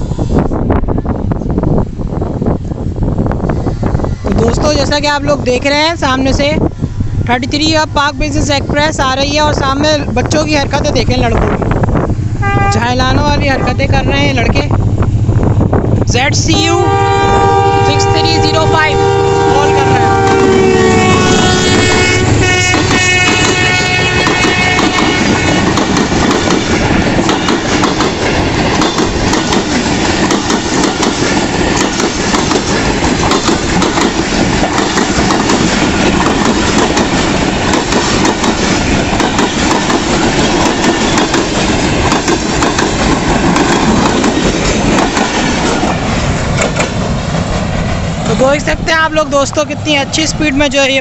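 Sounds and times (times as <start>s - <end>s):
diesel locomotive pitched tone: 0.0s - 51.0s
train wheels clattering over rail joints: 22.7s - 48.3s.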